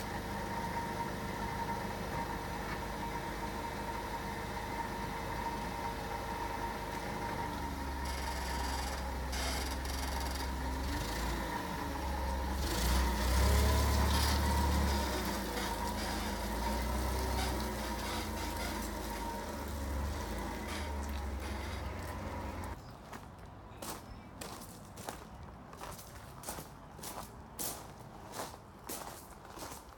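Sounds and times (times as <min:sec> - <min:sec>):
forklift engine running: 0:00.0 - 0:22.8.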